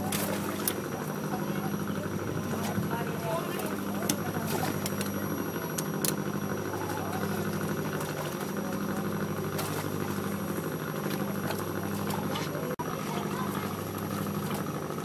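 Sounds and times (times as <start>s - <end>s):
engine humming steadily: 0.0s - 15.0s.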